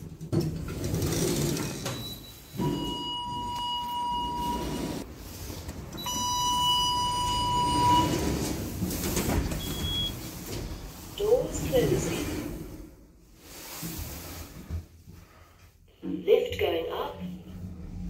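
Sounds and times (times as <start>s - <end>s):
lift doors rumbling and sliding: 0.0s - 14.9s, 17.4s - 18.0s
lift electronic beeps: 1.9s - 5.0s, 6.0s - 8.6s, 9.6s - 10.2s.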